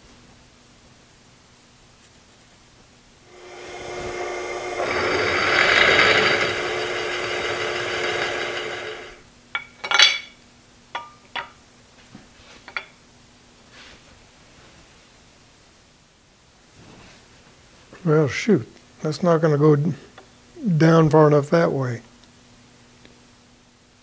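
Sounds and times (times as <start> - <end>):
drill press drilling into metal: 3.3 - 9.2.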